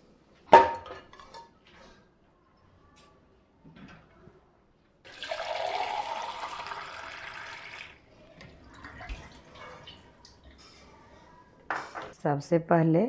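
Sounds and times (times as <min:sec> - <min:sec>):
water gushing from tap: 0:05.1 - 0:08.0.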